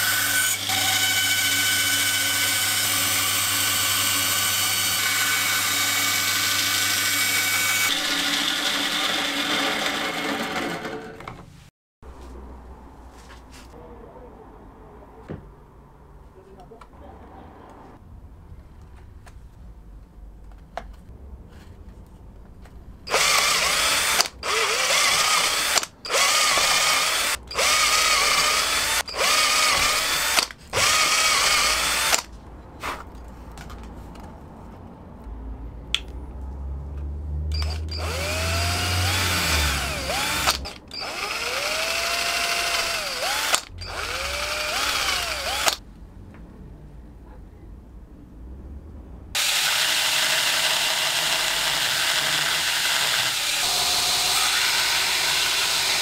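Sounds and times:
electric drill boring plastic: 0.0s - 11.2s, 23.1s - 32.3s, 37.5s - 45.8s, 49.4s - 56.0s.

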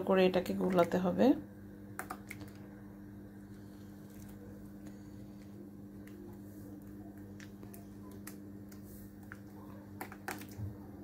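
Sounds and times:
steady low hum: 0.0s - 11.0s
batter mixing clicks: 1.9s - 2.6s, 4.0s - 11.0s.

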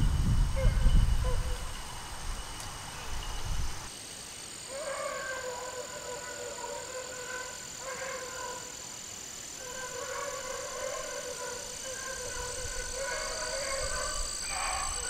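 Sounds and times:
distant dogs baying: 0.5s - 2.0s, 4.7s - 15.0s.

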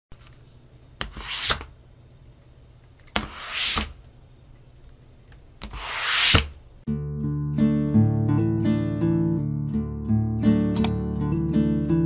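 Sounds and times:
sharp click: 10.7s - 11.0s.

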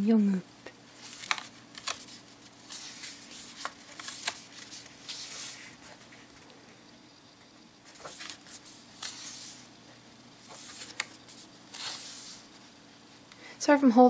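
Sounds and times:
paper pages turning: 1.0s - 6.4s, 7.9s - 9.7s, 10.4s - 12.6s.

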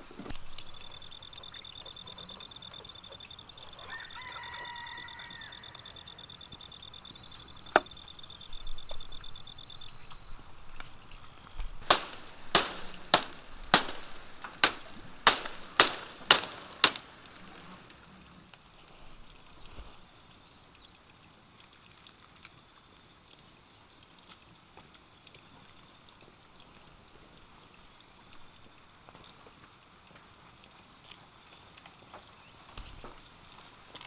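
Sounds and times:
pulsing insect trill: 0.5s - 17.7s.

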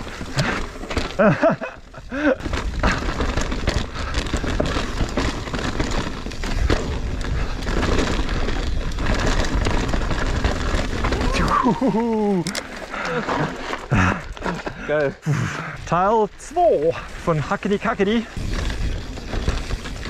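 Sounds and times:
bike knocks and rattles: 0.0s - 11.4s, 18.2s - 20.0s
tyres running over mud: 0.0s - 20.0s.

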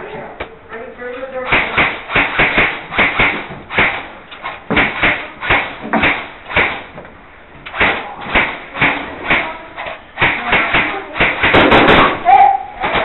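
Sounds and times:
sharp knocks and thuds: 1.5s - 9.5s.

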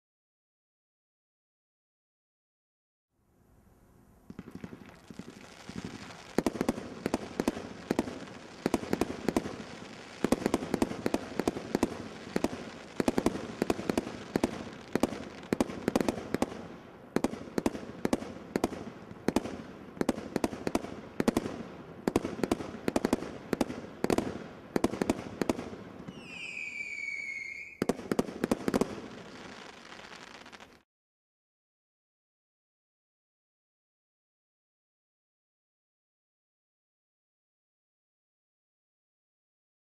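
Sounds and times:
whistling firework: 4.3s - 16.6s, 22.1s - 30.8s
fireworks barrage shots: 4.3s - 30.8s.

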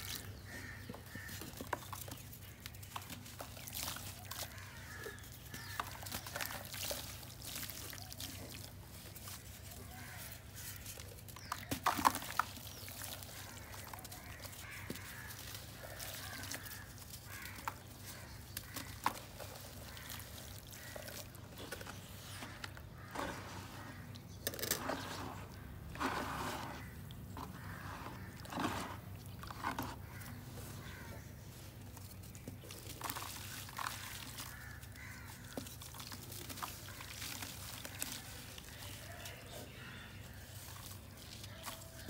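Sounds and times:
hands squelching wet soil: 0.0s - 42.0s
water dripping: 1.0s - 23.0s, 32.4s - 42.0s
water splashing: 32.5s - 42.0s.

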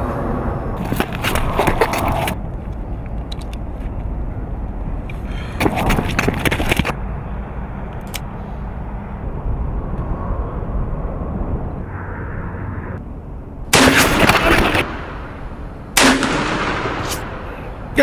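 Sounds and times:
steady low rumble: 0.0s - 18.0s
revolver shots: 13.8s - 15.4s, 16.0s - 17.5s.

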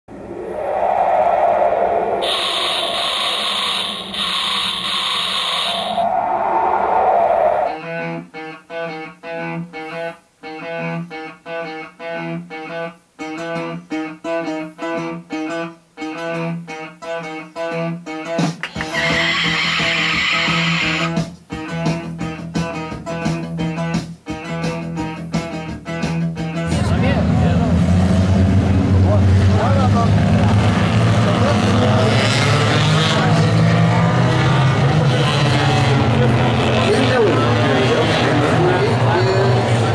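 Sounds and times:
race car engines droning: 0.1s - 7.8s, 26.7s - 39.9s
plucked guitar rhythm: 7.8s - 27.2s.

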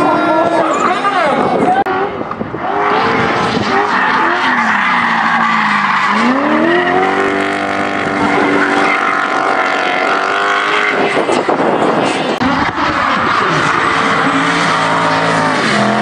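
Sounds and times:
car engine at full throttle: 0.0s - 16.0s.

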